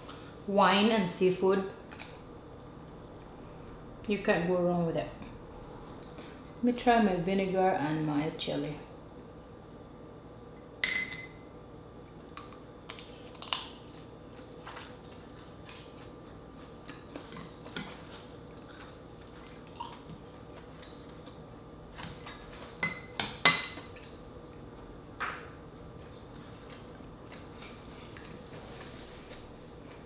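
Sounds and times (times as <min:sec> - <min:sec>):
soft chewing: 0:01.9 - 0:03.9, 0:05.2 - 0:06.5, 0:11.6 - 0:22.8, 0:23.8 - 0:25.0, 0:25.8 - 0:30.0.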